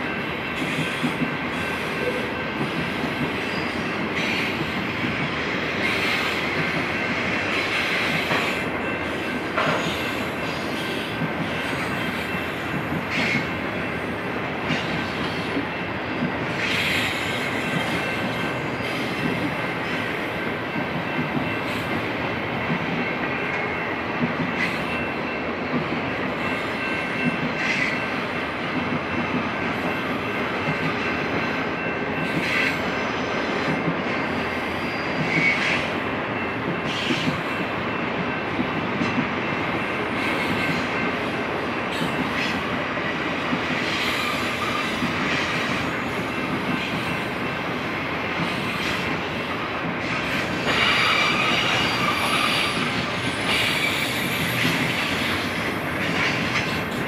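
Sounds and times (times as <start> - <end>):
rumble of train cars: 0.0 - 57.0
high wheel squeal: 3.4 - 4.4, 50.6 - 55.4.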